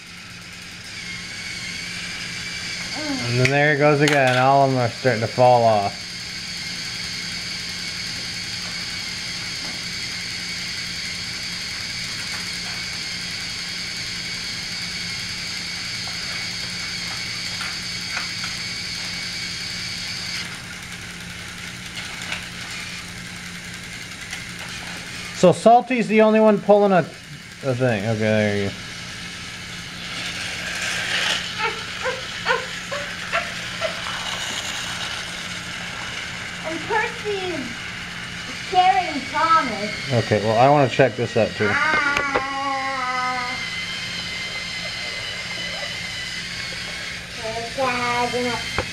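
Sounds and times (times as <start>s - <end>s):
toy train motors whirring: 0.0s - 48.9s
toy train wheels rattling: 16.0s - 25.6s, 27.1s - 40.2s.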